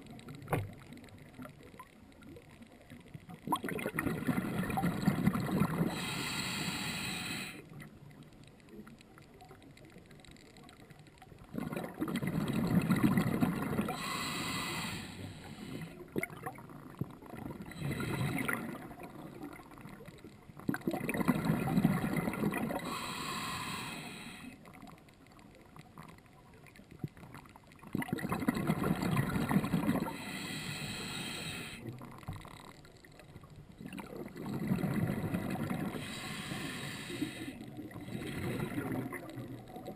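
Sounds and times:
bubbling and hiss: 0.0 - 10.0, 10.9 - 39.9
diver breathing through regulator: 5.7 - 7.8, 13.8 - 16.1, 17.6 - 18.8, 22.7 - 24.6, 29.8 - 32.0, 35.1 - 39.4.

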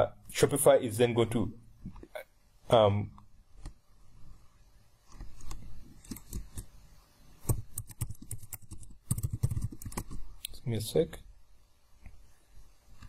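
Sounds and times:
computer keyboard typing: 5.4 - 6.7, 7.5 - 10.3.

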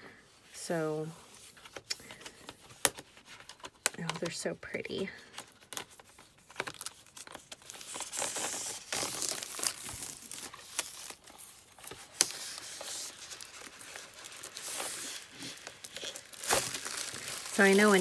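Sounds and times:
plastic film crinkling: 1.3 - 18.0
plastic film snapping: 5.6 - 18.0.

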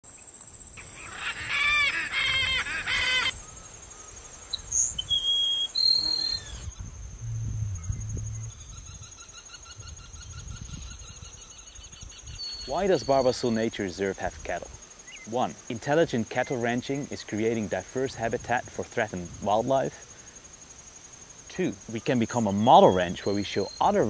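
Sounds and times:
high insect buzz: 0.1 - 24.0
loud arching bird calls: 0.8 - 3.6
sparrow whistled notes: 3.2 - 6.7.

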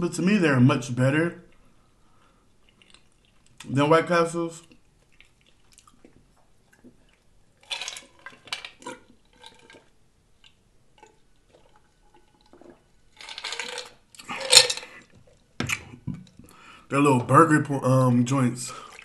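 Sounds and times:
swallowing: 1.5 - 3.7, 4.6 - 12.9
liquid sloshing: 4.6 - 16.5, 18.6 - 19.0
ice cubes clinking against glass: 13.2 - 14.9.

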